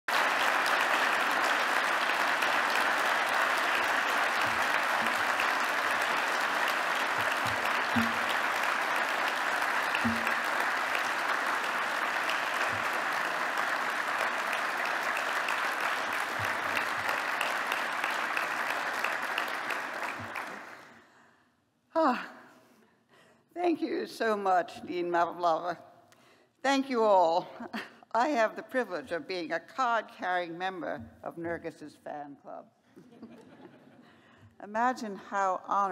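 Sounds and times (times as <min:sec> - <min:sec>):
large audience applauding: 0:00.0 - 0:21.0.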